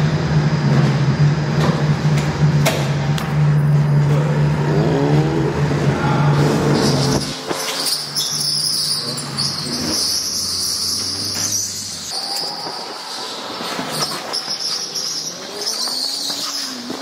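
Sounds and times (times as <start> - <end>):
low hum: 0.0 - 8.0.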